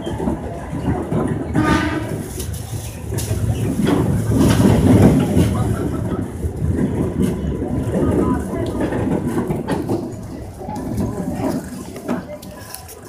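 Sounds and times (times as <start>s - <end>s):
electric train rumbling: 0.0s - 13.0s.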